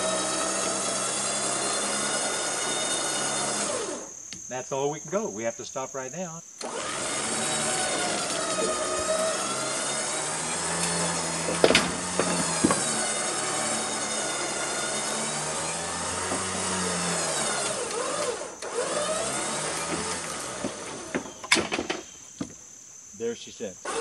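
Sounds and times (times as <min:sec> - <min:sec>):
electric winch motor whining: 0:00.0 - 0:04.3, 0:06.6 - 0:22.6
log knocking: 0:07.7 - 0:17.7, 0:19.3 - 0:22.6.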